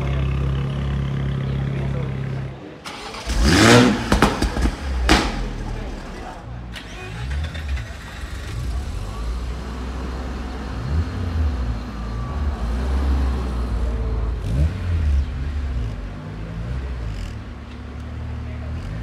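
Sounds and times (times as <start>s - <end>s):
car engine revving: 0.0s - 19.0s.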